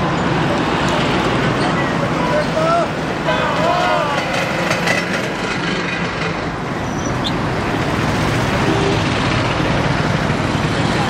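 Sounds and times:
diesel engines idling: 0.0s - 11.0s
passing highway traffic: 0.0s - 11.0s.

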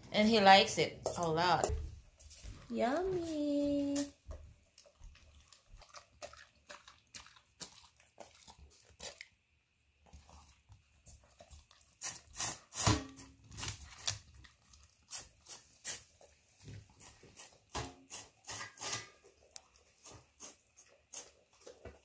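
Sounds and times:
dog eating wet smacking: 4.2s - 9.4s.

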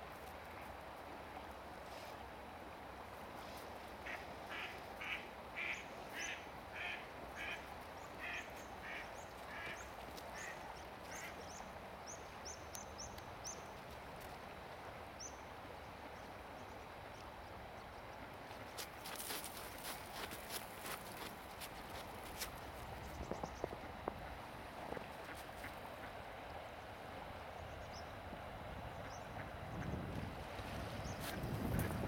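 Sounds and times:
ducks quacking: 4.0s - 7.6s, 8.2s - 11.4s.

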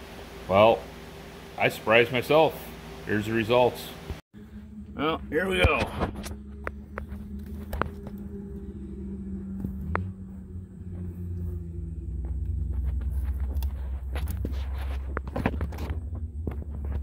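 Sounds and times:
low mechanical hum: 0.0s - 17.0s
rumble: 4.1s - 17.0s.

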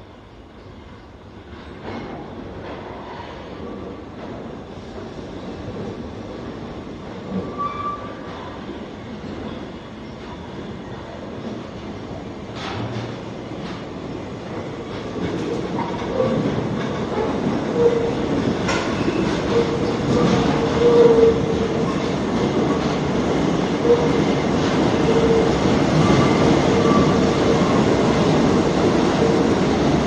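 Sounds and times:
subway train rumbling past: 0.0s - 30.0s.

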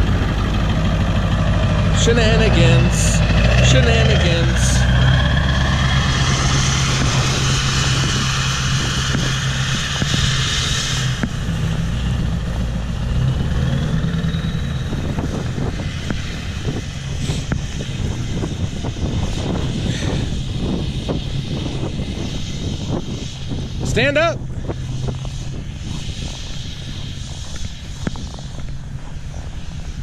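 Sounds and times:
diesel engine running: 0.0s - 30.0s.

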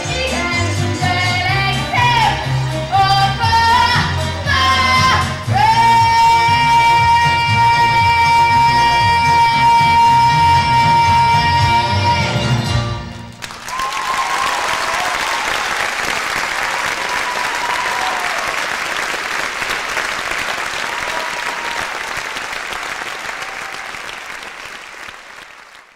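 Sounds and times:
audience applauding: 13.3s - 25.9s.

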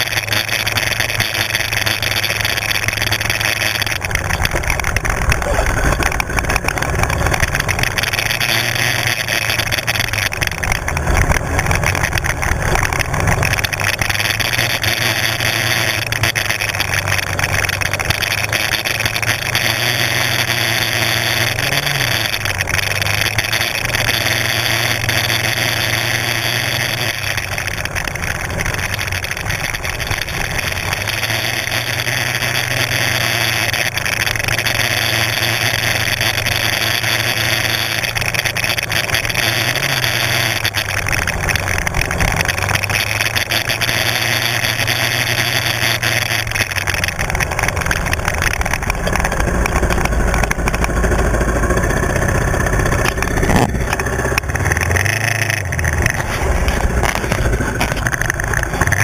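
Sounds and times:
quad bike engine running: 0.0s - 59.0s.

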